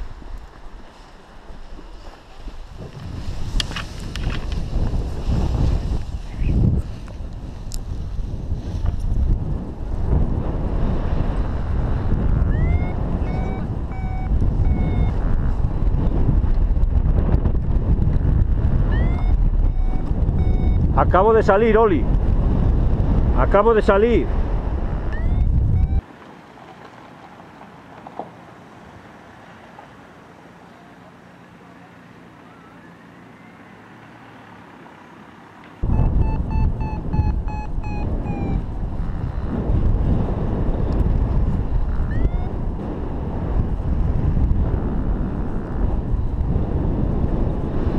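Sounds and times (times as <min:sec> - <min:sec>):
wind rushing over microphone: 0:00.0 - 0:26.0, 0:35.8 - 0:47.9
variometer beeping: 0:12.5 - 0:15.3, 0:18.8 - 0:21.0, 0:25.1 - 0:26.0, 0:35.8 - 0:38.8, 0:42.1 - 0:42.6.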